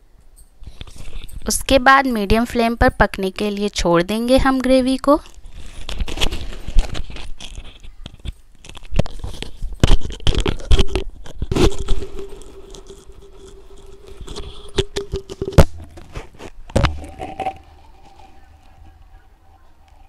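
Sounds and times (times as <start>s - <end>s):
faint steady hum: 10.7s - 20.0s.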